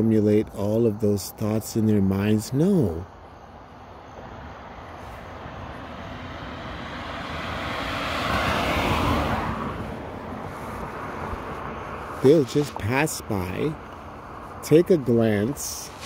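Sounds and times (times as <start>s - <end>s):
car driving past: 4.7s - 16.0s.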